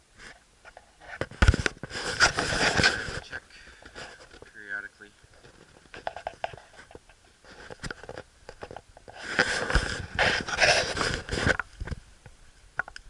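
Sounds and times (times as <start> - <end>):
rustling through ferns: 1.0 - 6.1, 9.0 - 11.8.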